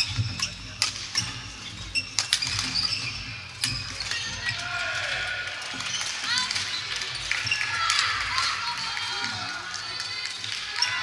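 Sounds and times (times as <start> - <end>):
sports shoes squeaking: 0.0 - 4.7.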